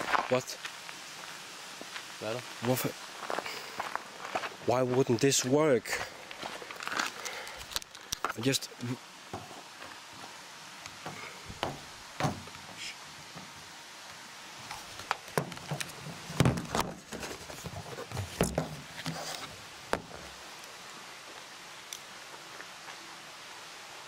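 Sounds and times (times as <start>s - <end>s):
steady low hiss: 0.0s - 24.0s
irregular knocks and clicks: 10.9s - 12.6s.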